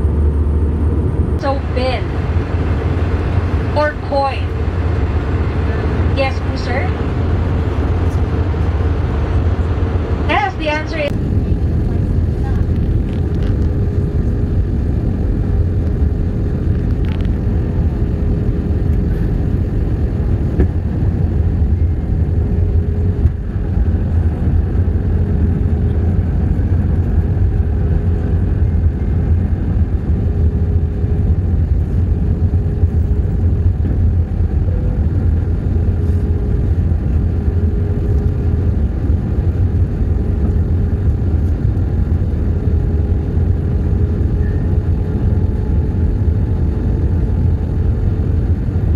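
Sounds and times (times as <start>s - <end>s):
airliner cabin rumble: 0.0s - 48.9s
faint steady hum: 0.0s - 48.9s.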